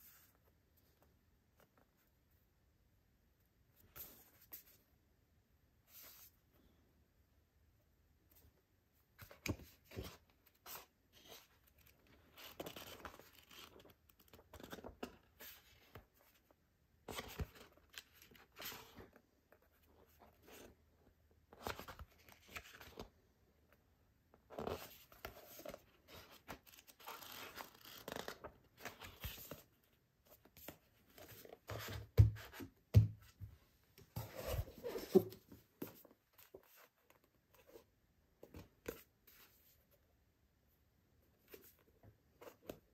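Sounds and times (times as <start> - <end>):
book pages riffled and turned: 0.0 - 2.4, 3.8 - 4.9, 5.9 - 6.4, 8.3 - 40.0, 41.3 - 42.9.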